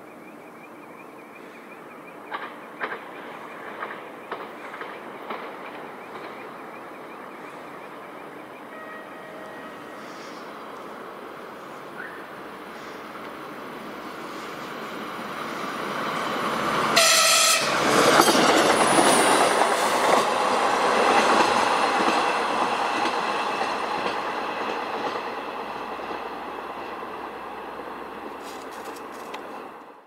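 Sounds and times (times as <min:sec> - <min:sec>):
railbus running noise: 0:00.0 - 0:30.0
train horn blast: 0:08.7 - 0:10.4, 0:16.9 - 0:17.9.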